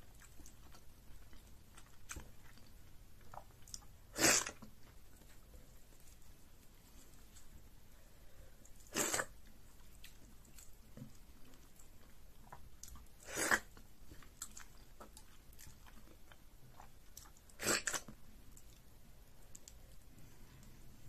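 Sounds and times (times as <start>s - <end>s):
faint chewing clicks: 0.0s - 7.5s, 8.6s - 20.8s
loud wet mouth sounds: 4.1s - 4.6s, 8.9s - 9.4s, 13.2s - 13.7s, 17.6s - 18.1s.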